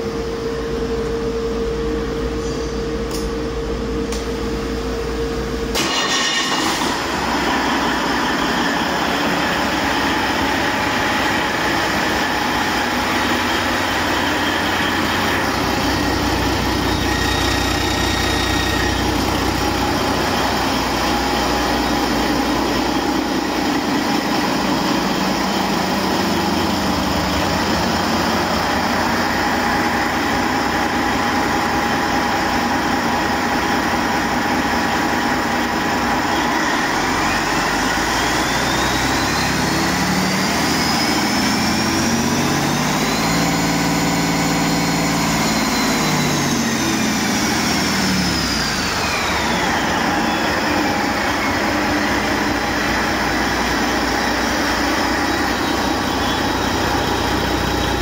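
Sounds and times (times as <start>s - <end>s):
diesel engine running loudly: 0.0s - 58.0s
rising and falling whine: 0.0s - 58.0s.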